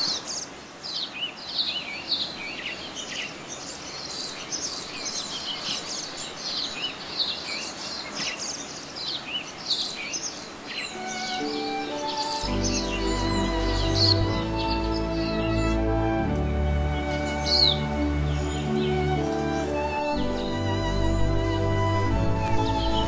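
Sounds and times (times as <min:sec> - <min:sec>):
birds chirping and twittering: 0:00.0 - 0:23.0
music: 0:10.9 - 0:23.0.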